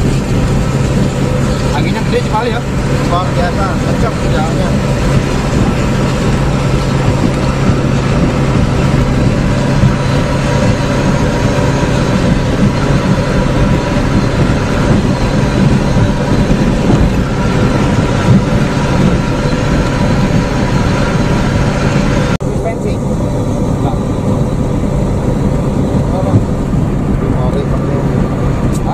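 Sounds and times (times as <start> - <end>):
low engine hum: 0.0 - 28.9
vehicle road noise: 0.0 - 28.9.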